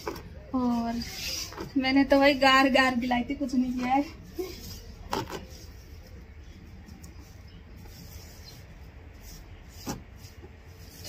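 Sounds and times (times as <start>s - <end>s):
hands smoothing wet clay: 0.6s - 2.2s, 3.7s - 11.0s.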